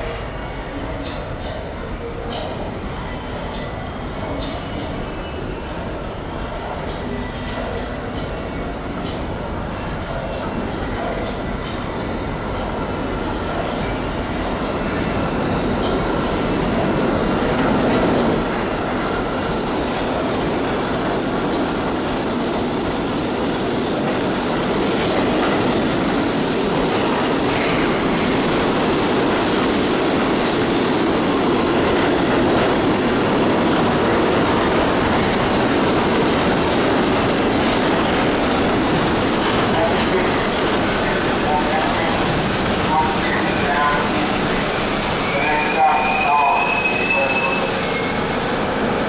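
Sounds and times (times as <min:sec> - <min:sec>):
subway train wheels and rail clatter: 0:00.0 - 0:49.0
high-pitched brake squeal: 0:45.2 - 0:48.2.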